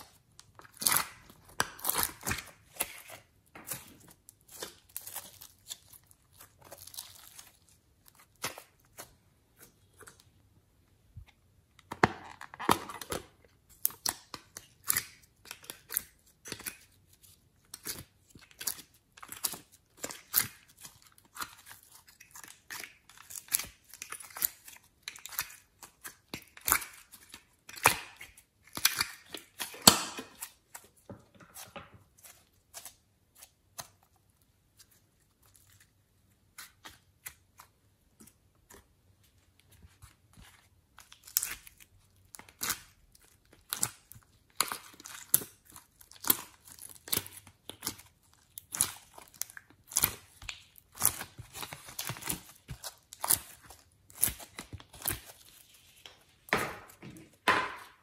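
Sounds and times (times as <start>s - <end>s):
slime crackling and popping: 0.0s - 9.1s, 41.0s - 55.7s.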